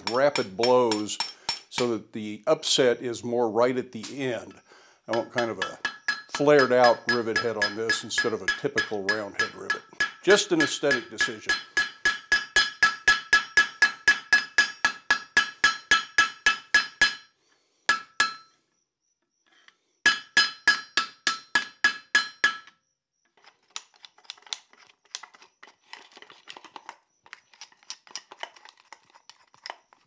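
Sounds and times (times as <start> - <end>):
hammer ringing on rivet: 0.0 - 1.9, 5.1 - 17.3, 17.9 - 18.5, 20.1 - 22.7
faint clicking and scraping: 23.3 - 30.0.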